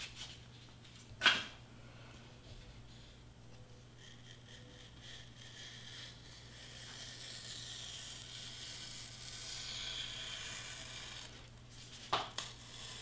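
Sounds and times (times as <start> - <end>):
knife cutting foam board: 4.0 - 13.0.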